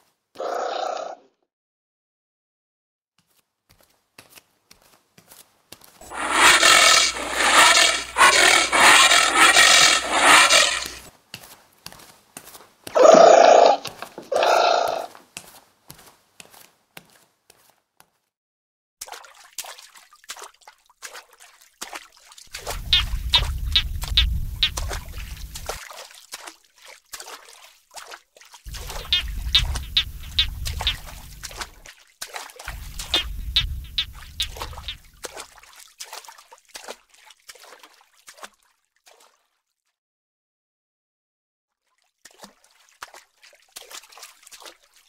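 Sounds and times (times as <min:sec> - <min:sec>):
raspy creature clicking chatter: 0:06.0 - 0:11.0, 0:22.6 - 0:25.8, 0:28.7 - 0:31.7, 0:32.7 - 0:35.1.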